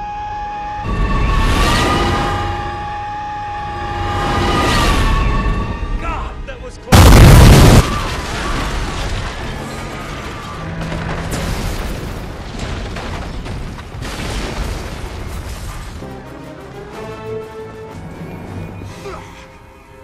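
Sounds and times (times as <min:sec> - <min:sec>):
orchestral film score: 0:00.0 - 0:11.8, 0:15.4 - 0:20.0
loud distorted blast: 0:06.9 - 0:09.0
rumbling crashes and debris: 0:06.9 - 0:16.0.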